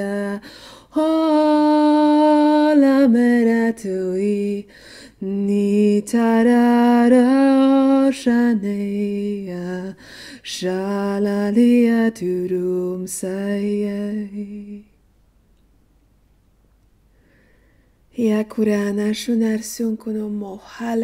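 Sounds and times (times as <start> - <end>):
woman singing long held notes: 0.0 - 14.9.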